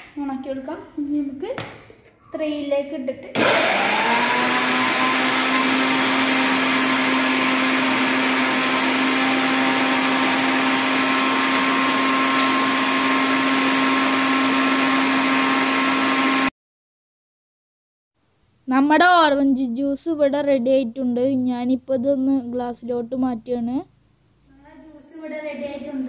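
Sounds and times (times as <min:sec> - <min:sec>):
mixer grinder motor whirring: 0:03.4 - 0:16.5.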